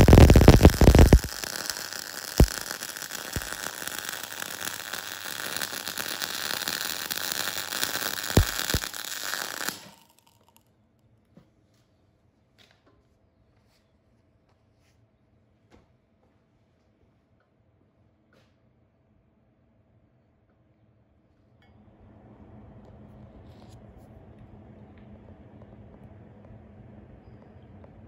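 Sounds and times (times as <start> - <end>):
welding arc crackling and hissing: 0.0 - 10.4.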